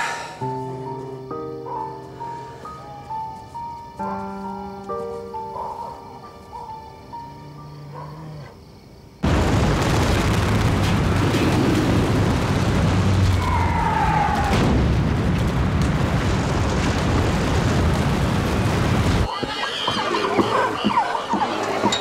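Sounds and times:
soft music: 0.0s - 8.4s
explosions and heavy rumbling: 9.2s - 19.3s.

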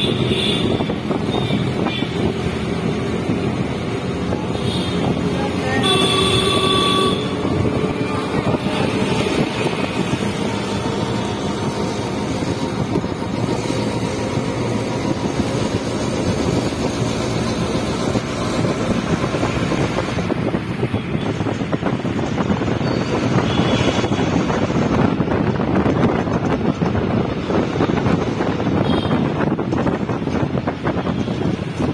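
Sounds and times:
vehicle running and road noise: 0.0s - 31.9s
wind buffeting microphone: 0.0s - 31.9s.

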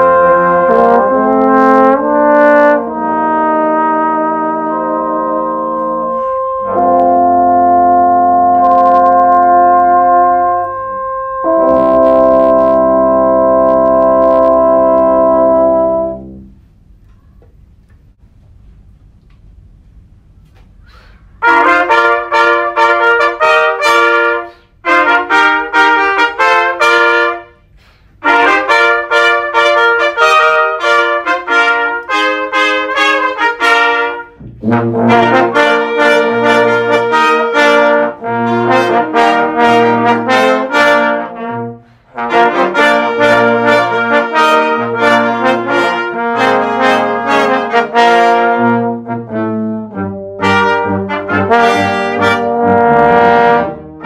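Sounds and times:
trumpet phrases: 0.0s - 16.6s, 21.4s - 54.0s
lower brass: 0.0s - 16.7s, 21.4s - 54.0s.

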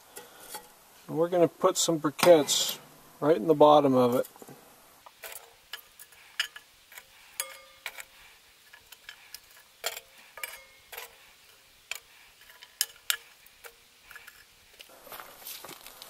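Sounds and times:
tongs clinking briquettes on iron: 0.0s - 0.8s, 2.1s - 2.9s, 4.0s - 14.9s.

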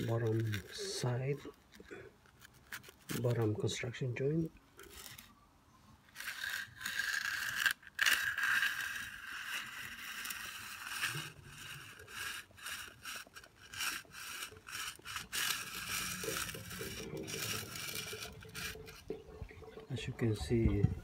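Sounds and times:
concrete edger scraping: 6.1s - 19.5s.

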